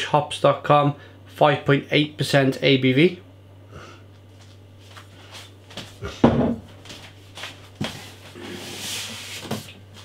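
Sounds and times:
glass bottles knocking on table: 6.3s - 6.6s.

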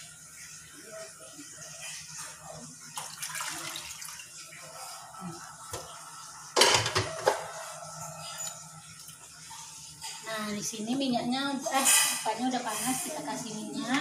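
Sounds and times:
kitchenware clattering: 6.6s - 7.7s.

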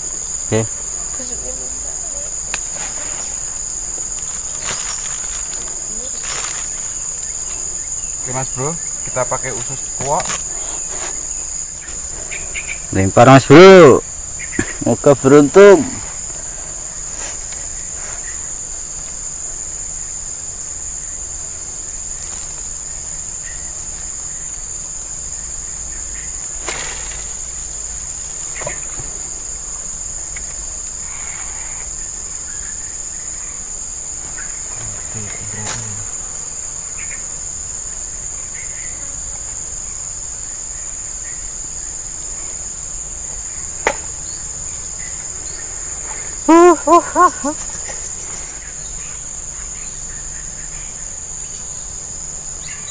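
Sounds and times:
insects buzzing: 0.0s - 52.9s.

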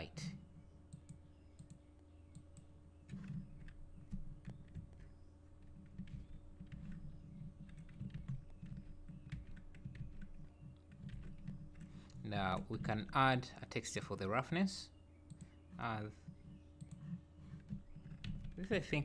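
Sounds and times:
faint steady hum: 0.0s - 19.0s
typing on computer keyboard: 3.1s - 11.9s.

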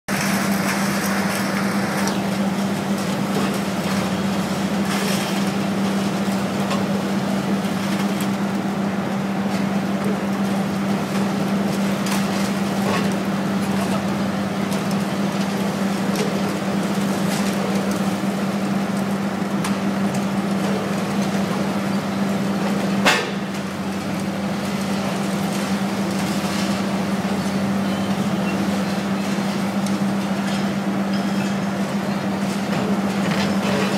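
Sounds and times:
falling debris clatter: 0.1s - 8.4s, 22.7s - 31.8s
excavator engine hum: 0.1s - 33.9s.

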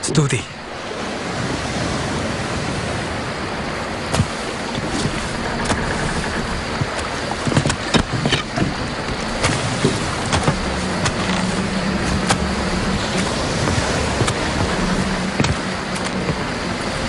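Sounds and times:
sea surf: 0.0s - 17.0s
wind: 0.0s - 17.0s
sharp clicks and knocks: 5.0s - 11.5s.

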